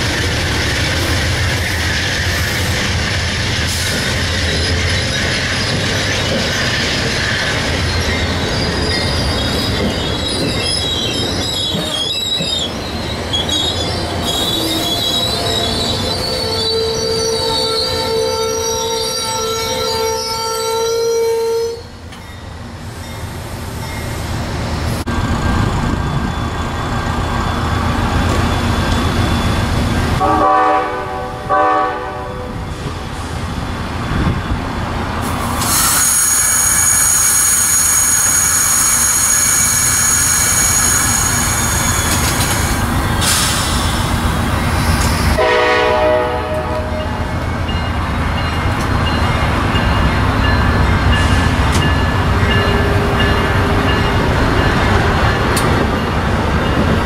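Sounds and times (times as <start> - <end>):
diesel locomotive engine: 0.0 - 57.0
train wheels squealing: 0.1 - 21.2, 21.8 - 24.4, 25.2 - 30.1, 32.6 - 45.4
train horn blasts: 16.4 - 21.9, 30.2 - 32.6, 45.4 - 47.2.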